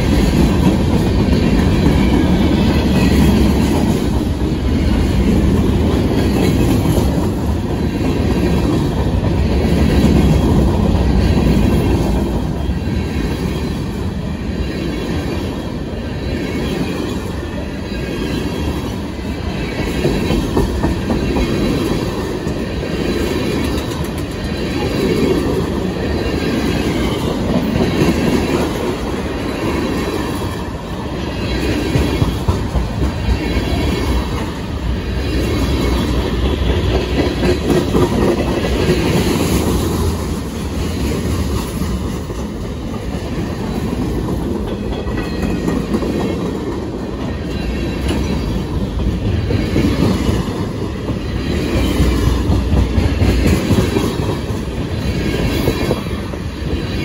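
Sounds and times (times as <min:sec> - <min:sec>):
freight train rolling past: 0:00.0 - 0:57.0
steel wheels clacking over rail joints: 0:18.2 - 0:57.0.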